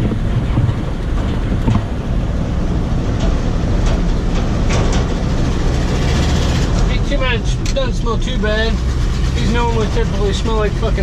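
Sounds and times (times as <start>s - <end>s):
clicks and rattles in cab: 0.0s - 2.2s, 3.0s - 8.1s
truck engine running: 0.0s - 11.0s.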